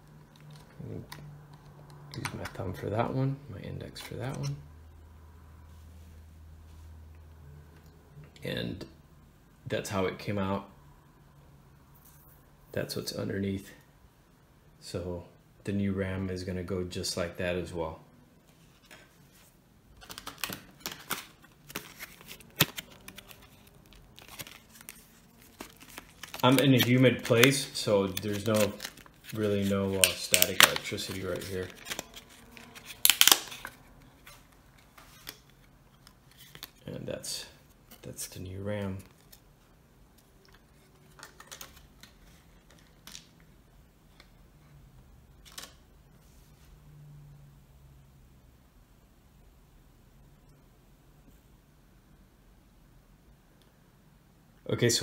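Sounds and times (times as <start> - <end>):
plastic packaging crinkling: 20.0 - 36.8.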